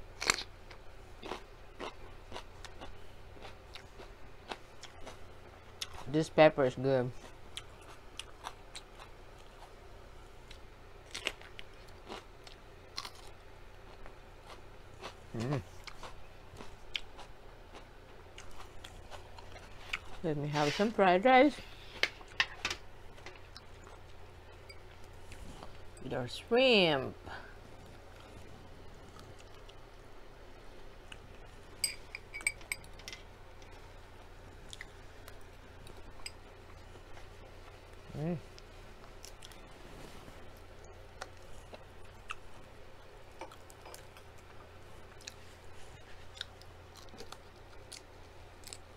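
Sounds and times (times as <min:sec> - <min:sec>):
crunchy pepper chewing: 0:00.2 - 0:06.2, 0:07.1 - 0:09.8, 0:10.4 - 0:20.2, 0:23.1 - 0:25.9, 0:27.5 - 0:29.9, 0:33.6 - 0:39.8, 0:40.4 - 0:48.9
wet chewing: 0:10.4 - 0:20.2, 0:27.6 - 0:29.8
person humming: 0:15.3 - 0:15.7.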